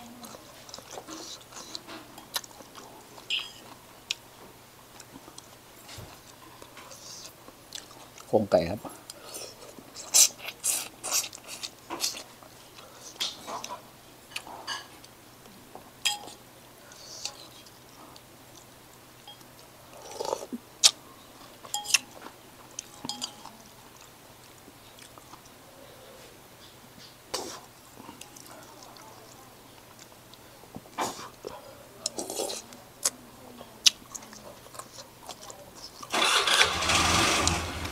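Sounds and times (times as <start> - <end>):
person chewing noodles: 0.2 - 4.2, 6.2 - 8.3, 9.0 - 14.5, 16.2 - 25.6, 33.8 - 36.1
metal spoon clinking bowl: 16.0 - 16.4, 21.7 - 22.2, 22.9 - 23.5.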